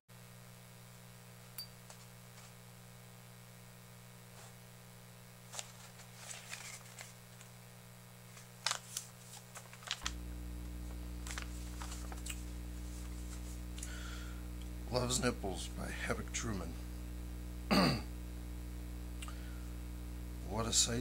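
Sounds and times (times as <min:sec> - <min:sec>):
steady electrical hum: 0:00.2 - 0:21.0
clicks and rustles of handling: 0:05.5 - 0:07.5, 0:08.3 - 0:10.2, 0:10.9 - 0:13.6.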